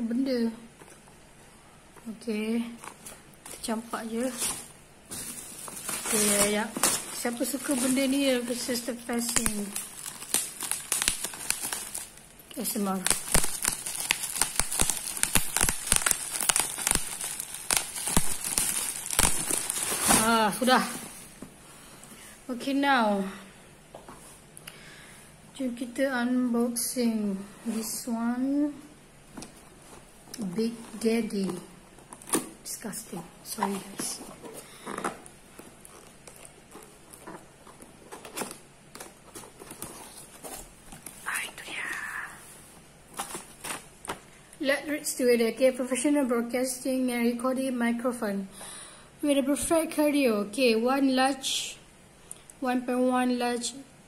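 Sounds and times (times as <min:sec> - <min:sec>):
bubble wrap crinkling and popping: 0:02.7 - 0:21.5, 0:29.4 - 0:42.3, 0:42.9 - 0:44.4.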